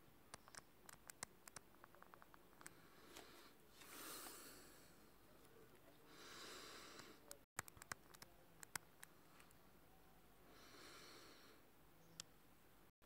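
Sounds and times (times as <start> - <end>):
soft clicks: 0.3 - 2.8, 7.0 - 9.6
faint breaths: 2.6 - 7.5, 10.3 - 11.7.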